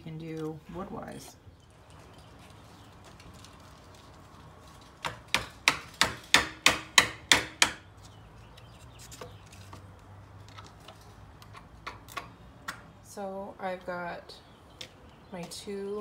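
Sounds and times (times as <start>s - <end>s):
hammer striking wooden board: 5.0s - 7.8s.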